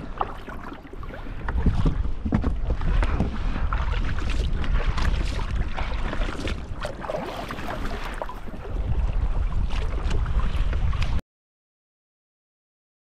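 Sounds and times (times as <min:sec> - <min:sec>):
water splashing against kayak hull: 0:00.0 - 0:11.2
wind buffeting microphone: 0:00.0 - 0:11.2.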